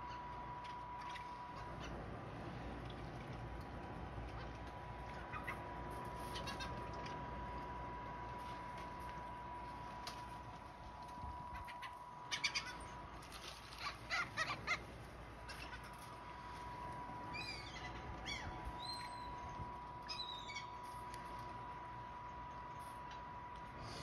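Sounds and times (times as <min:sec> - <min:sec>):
gulls calling: 0:00.0 - 0:02.7, 0:04.2 - 0:08.0, 0:11.0 - 0:23.5.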